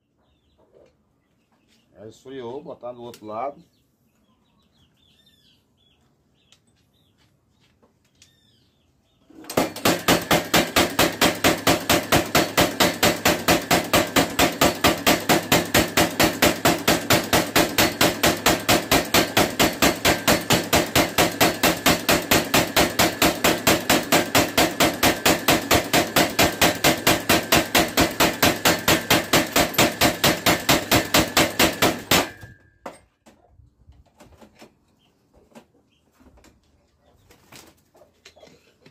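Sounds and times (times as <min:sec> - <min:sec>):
power hammer pounding hot steel: 0:09.5 - 0:32.6.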